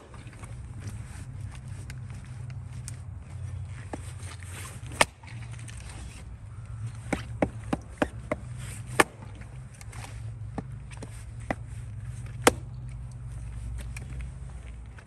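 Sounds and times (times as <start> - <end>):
hatchet splitting firewood: 3.9 - 6.3, 6.9 - 10.7, 11.4 - 13.1.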